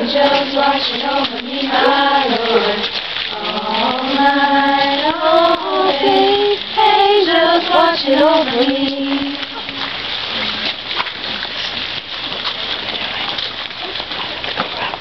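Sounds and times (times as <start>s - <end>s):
group of voices singing: 0.0s - 9.9s.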